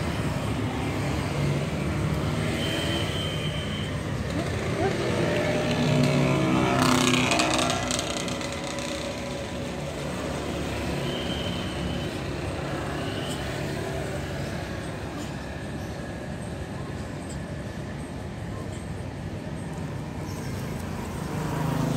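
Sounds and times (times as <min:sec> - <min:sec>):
traffic hum: 0:00.0 - 0:21.9.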